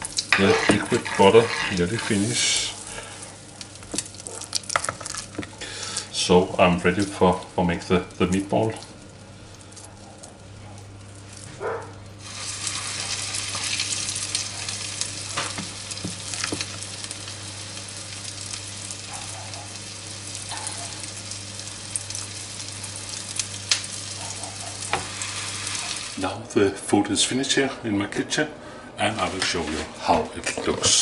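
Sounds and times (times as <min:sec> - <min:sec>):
meatballs sizzling in butter: 0:00.0 - 0:26.3
steady low hum: 0:00.0 - 0:31.0.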